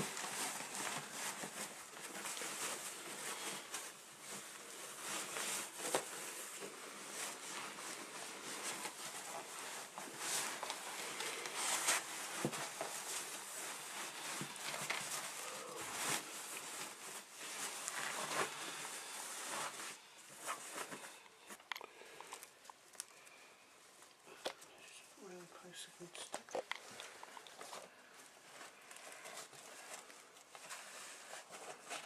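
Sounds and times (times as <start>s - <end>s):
plastic packaging crinkling: 26.0s - 32.0s.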